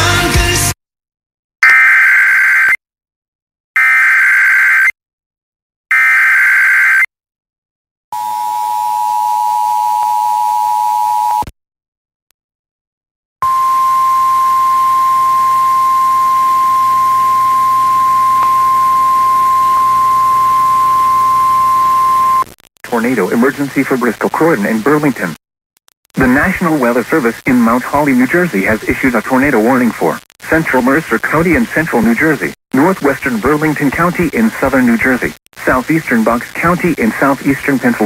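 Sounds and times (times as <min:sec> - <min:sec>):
long steady single tone: 0:08.2 - 0:11.5, 0:13.4 - 0:22.5.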